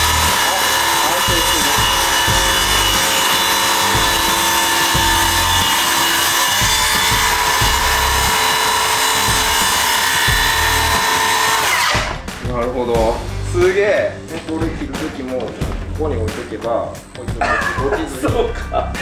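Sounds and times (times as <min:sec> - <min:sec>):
circular saw cutting wood: 0:00.0 - 0:13.2.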